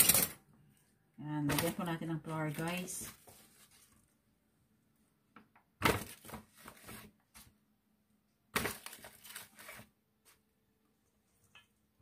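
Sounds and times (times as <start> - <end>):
flour bag crinkling: 1.5 - 4.2, 8.6 - 9.9.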